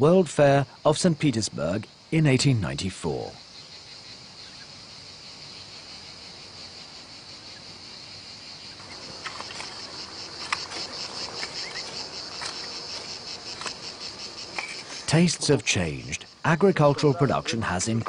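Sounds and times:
field insects chirring: 0:00.0 - 0:18.0
hoe and fork digging stony soil: 0:08.8 - 0:16.0.

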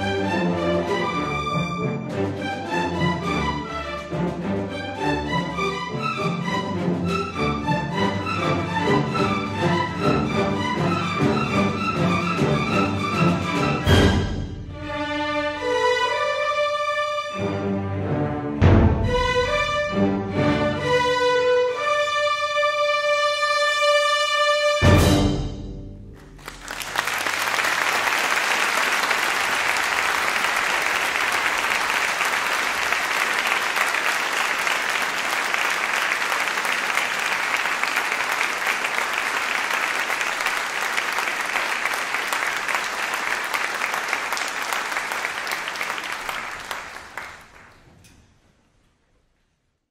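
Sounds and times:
audience applauding: 0:26.2 - 0:47.9.

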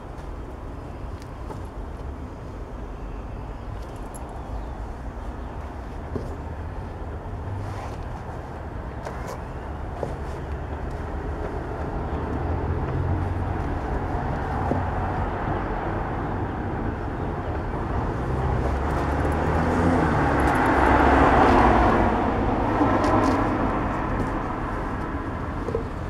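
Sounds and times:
road traffic rumble: 0:00.0 - 0:26.0
vehicle passing: 0:18.0 - 0:26.0.

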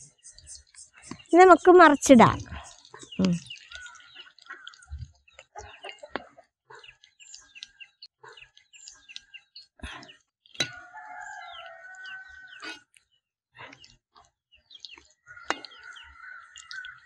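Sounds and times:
bird chirps and clucks: 0:00.0 - 0:12.9, 0:14.7 - 0:17.0
rooster crowing: 0:10.7 - 0:12.6.

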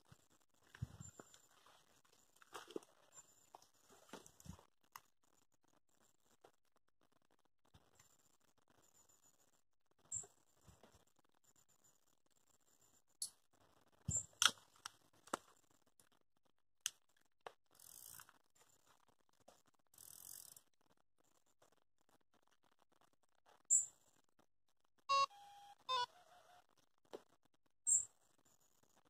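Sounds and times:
fishing reel clicks and taps: 0:17.8 - 0:18.3, 0:20.0 - 0:20.6
bite alarm bleep and tone: 0:25.1 - 0:26.2.

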